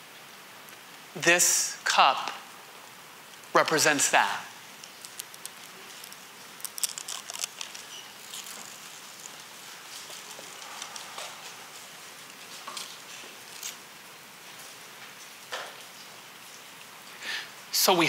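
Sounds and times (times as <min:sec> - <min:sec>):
plastic film crackling: 0:04.6 - 0:13.8.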